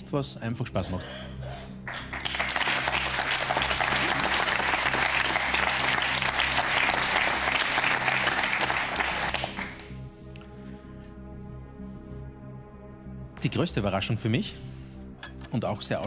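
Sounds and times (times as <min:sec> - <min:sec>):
group applauding: 0:01.8 - 0:10.0.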